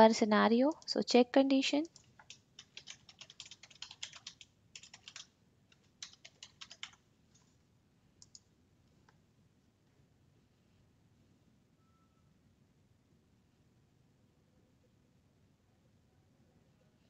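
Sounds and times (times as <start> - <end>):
typing on computer keyboard: 1.8 - 7.5, 8.2 - 8.4.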